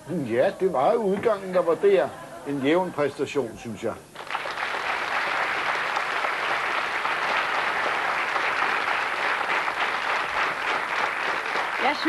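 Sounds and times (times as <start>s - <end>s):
audience clapping: 4.1s - 12.0s.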